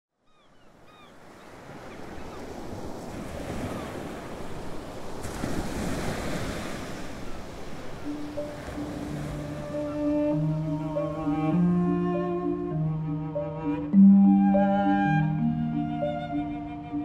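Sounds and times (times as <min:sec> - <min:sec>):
wind: 0:00.1 - 0:17.0
faint bird calls: 0:00.2 - 0:02.5
sea surf: 0:00.7 - 0:17.0.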